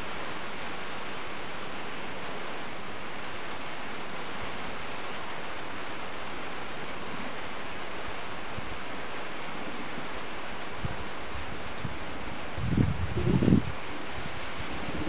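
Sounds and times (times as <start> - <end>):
steady outdoor hiss: 0.0 - 15.0.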